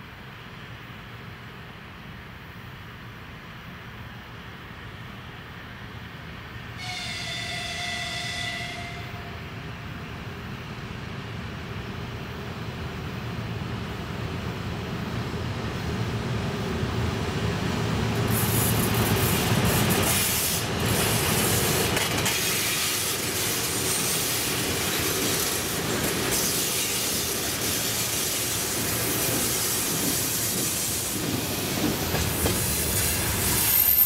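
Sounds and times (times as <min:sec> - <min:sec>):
train rumbling: 0:00.0 - 0:34.0
locomotive horn blast: 0:06.8 - 0:09.4.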